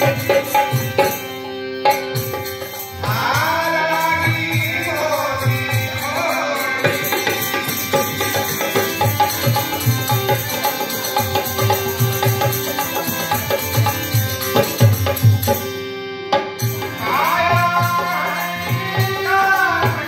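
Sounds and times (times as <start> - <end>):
man singing: 0.0 - 1.2, 3.0 - 13.2, 16.8 - 20.0
harmonium: 0.0 - 20.0
hand drums: 5.6 - 20.0.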